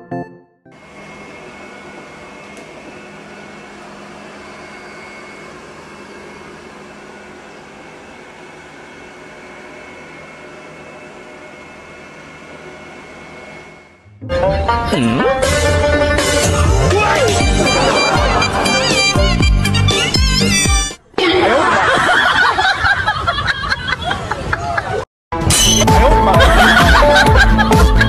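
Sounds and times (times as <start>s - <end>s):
robot vacuum whirring with whine: 0.8s - 14.0s.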